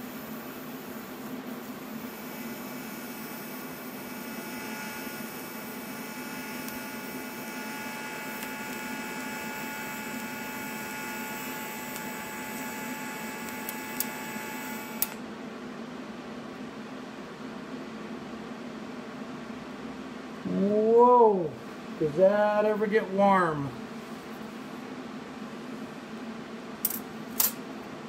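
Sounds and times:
welding arc buzzing hiss: 0:00.0 - 0:15.3, 0:25.7 - 0:27.9.

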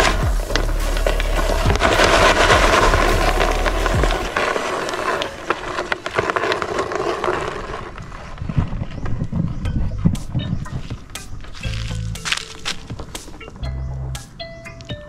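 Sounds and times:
dry leaves crackling underfoot: 0:00.0 - 0:08.3, 0:10.8 - 0:13.4.

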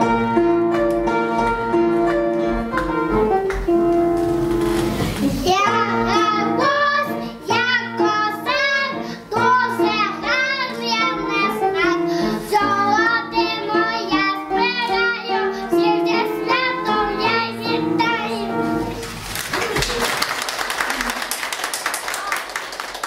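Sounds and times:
instrumental backing track: 0:00.0 - 0:19.2
child singing: 0:05.4 - 0:18.7.

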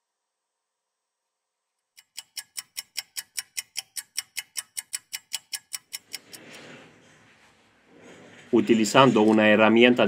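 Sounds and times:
stopwatch ticking: 0:02.0 - 0:06.6.

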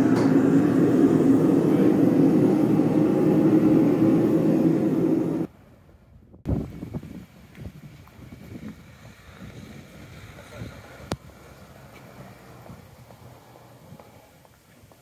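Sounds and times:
workshop machinery roaring: 0:00.0 - 0:05.5.

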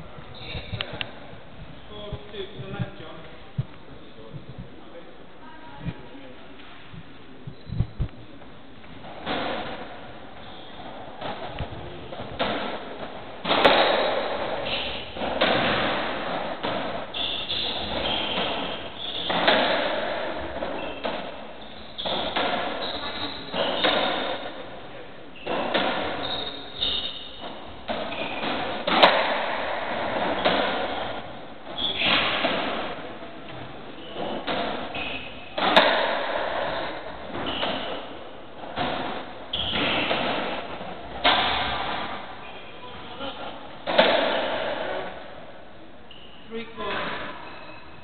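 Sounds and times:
ball hit by rackets echoing: 0:09.0 - 0:10.1, 0:10.9 - 0:24.8, 0:25.4 - 0:42.4, 0:43.4 - 0:45.4
trainers squeaking on wooden floor: 0:17.1 - 0:24.7, 0:25.3 - 0:29.1, 0:33.5 - 0:35.8, 0:36.8 - 0:38.2.

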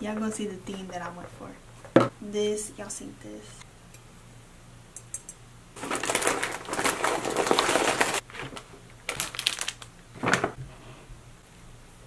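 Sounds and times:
paper and plastic crinkling: 0:05.8 - 0:10.6.

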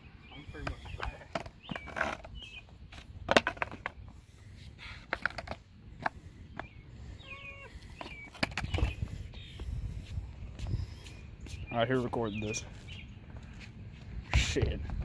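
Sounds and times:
skateboard rolling on concrete: 0:00.2 - 0:15.0
skateboard deck clacks: 0:03.3 - 0:04.0
faint bird chirps: 0:06.5 - 0:09.8.

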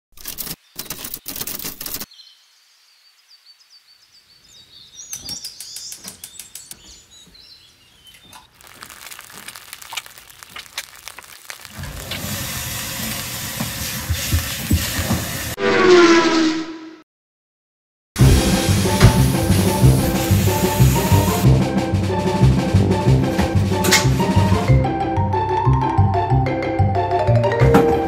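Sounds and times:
birds chirping faintly: 0:02.1 - 0:11.6
food sizzling in a pan: 0:08.5 - 0:14.3, 0:18.2 - 0:21.4.

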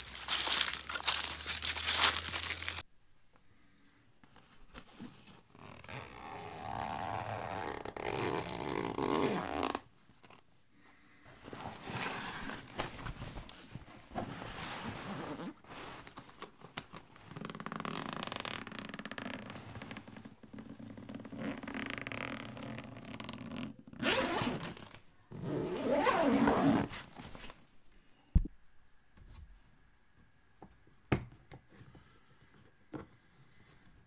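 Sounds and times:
footsteps crunching dry leaves: 0:00.0 - 0:02.8
zipper: 0:05.5 - 0:09.9, 0:11.4 - 0:12.8, 0:14.2 - 0:15.8, 0:17.2 - 0:27.5
fabric case rustling: 0:11.4 - 0:16.2.

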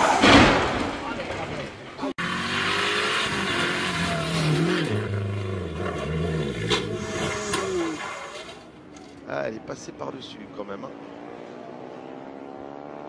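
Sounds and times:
rally car engine revving: 0:02.2 - 0:08.6.

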